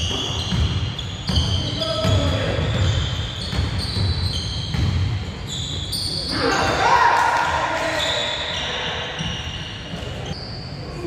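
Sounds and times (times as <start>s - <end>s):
basketball bouncing: 0.0s - 5.3s.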